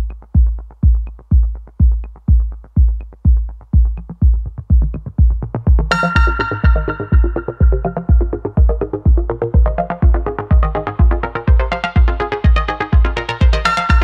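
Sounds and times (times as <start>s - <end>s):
electronic dance music: 0.0s - 14.0s
heavy kick drum: 0.0s - 14.0s
hi-hat ticks: 0.0s - 14.0s
bright synth chord: 5.9s - 8.5s.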